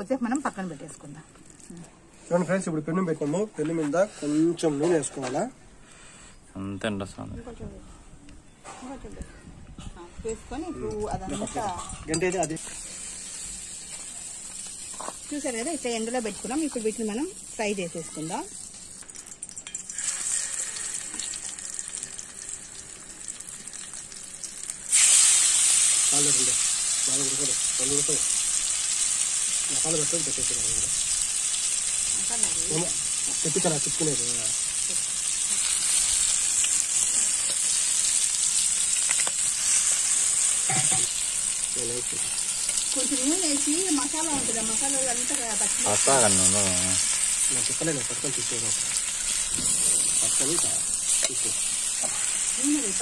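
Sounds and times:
chicken sizzling on griddle: 12.5 - 53.0.

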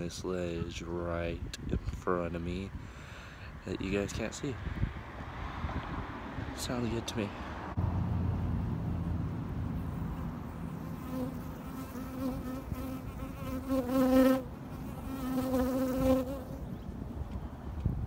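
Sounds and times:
bee buzzing: 9.8 - 16.7.

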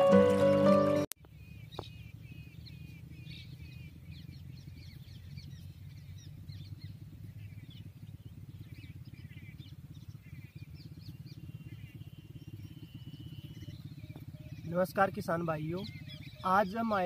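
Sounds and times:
music: 0.0 - 1.1
birds chirping: 0.0 - 17.0.

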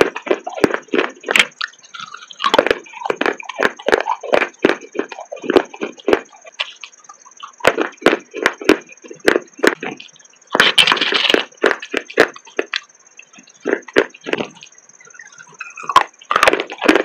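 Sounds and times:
brittle crunching while chewing: 0.1 - 8.8, 9.7 - 12.8, 15.4 - 17.0.

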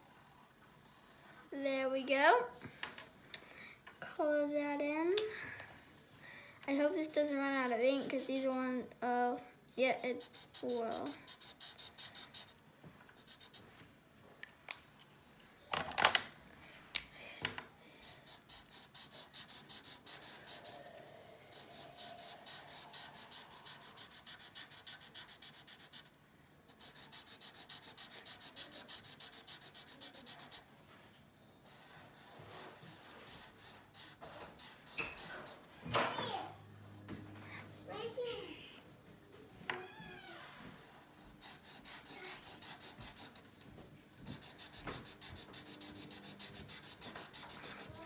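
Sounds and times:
marker scribbling on paper: 6.8 - 8.8, 9.8 - 13.6, 18.0 - 30.7, 31.6 - 37.3, 40.8 - 43.6, 44.2 - 48.0.

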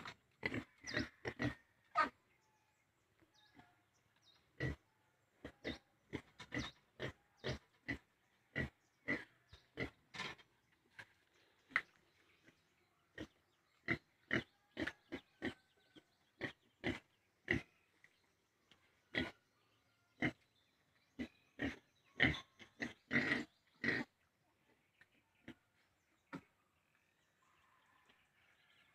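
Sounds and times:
piglet grunting: 5.4 - 10.0, 21.2 - 24.2.

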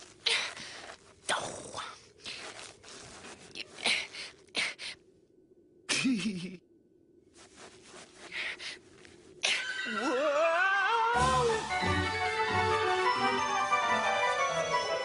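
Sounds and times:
wavering voiced ooh: 9.8 - 11.8.

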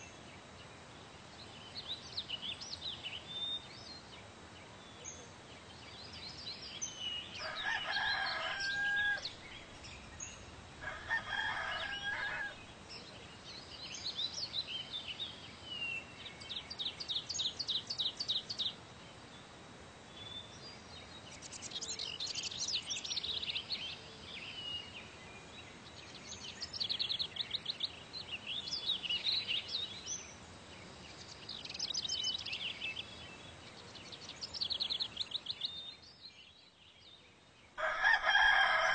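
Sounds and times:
small birds chirping: 0.0 - 38.9
rooster crowing: 7.4 - 9.4, 10.8 - 12.7, 37.8 - 38.9.

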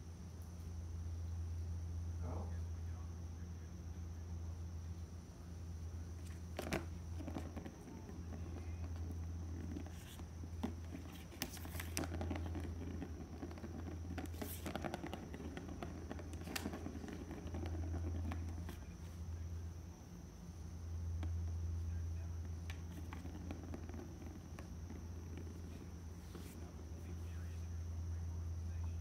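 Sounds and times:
low electrical hum: 0.0 - 29.0
kitten paws scampering on floor: 6.2 - 19.3.

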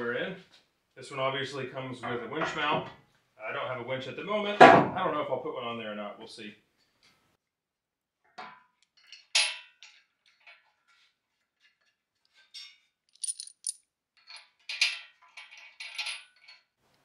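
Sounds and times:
bolts clinking on metal: 12.6 - 16.7.

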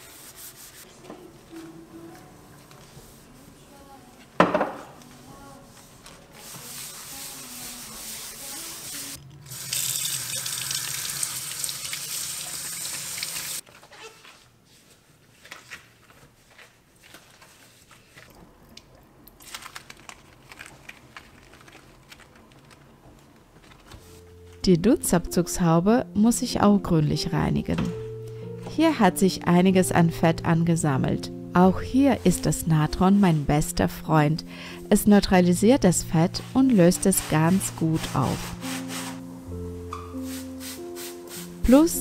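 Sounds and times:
rubbing and handling sounds: 0.0 - 9.2, 13.6 - 18.4, 35.6 - 41.9.

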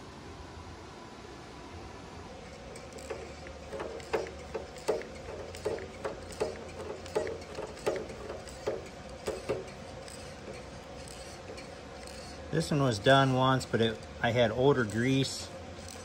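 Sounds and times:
grease gun clicking clunk: 2.8 - 12.2.

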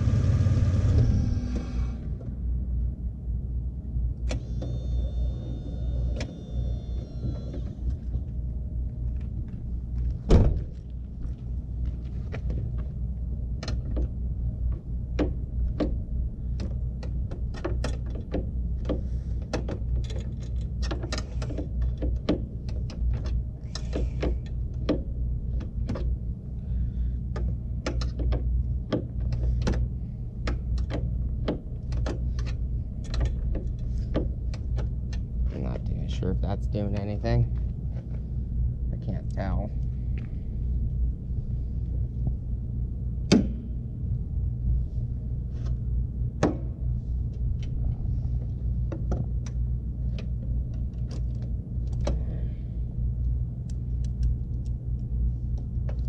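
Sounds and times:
vehicle engine idling: 0.0 - 3.0.

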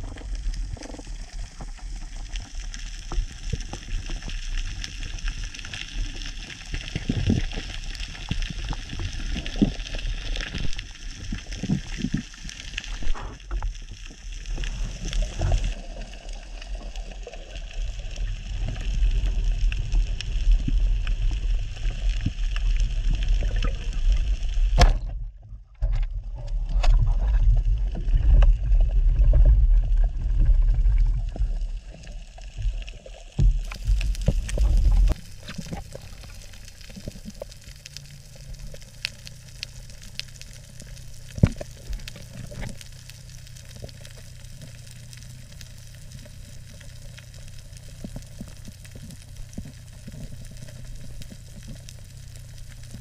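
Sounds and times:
water rushing and sloshing: 26.6 - 53.0
underwater reef hiss: 33.7 - 40.9.

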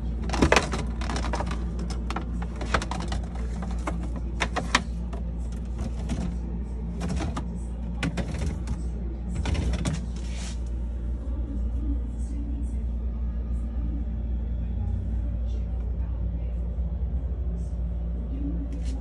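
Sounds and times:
plastic bins clicking and knocking: 0.0 - 10.4
steady low hum: 0.0 - 19.0.

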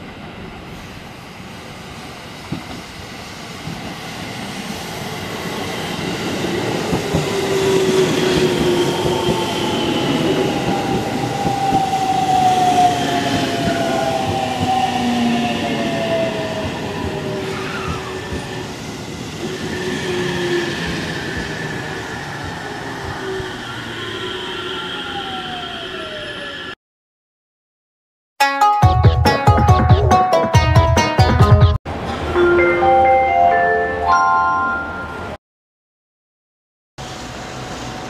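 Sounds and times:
train wheels rumbling on rails: 1.8 - 24.6.

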